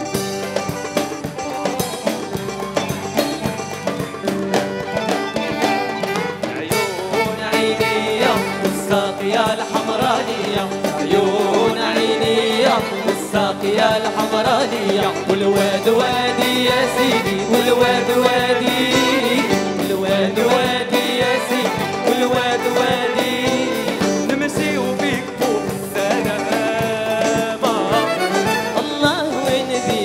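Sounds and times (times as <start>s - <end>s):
live band with keyboard and drums: 0.0s - 30.0s
men singing: 6.4s - 30.0s.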